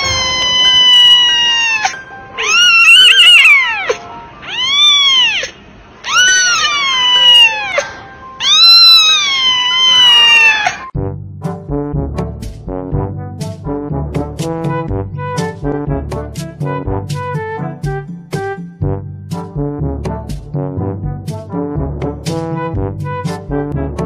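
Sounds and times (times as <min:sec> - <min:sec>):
kitten meowing: 0:00.0 - 0:10.9.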